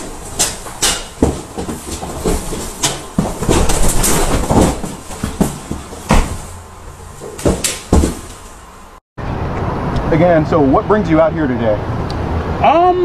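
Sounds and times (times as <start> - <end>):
feet stomping on tiled floor: 0.0 - 6.6, 7.2 - 8.5.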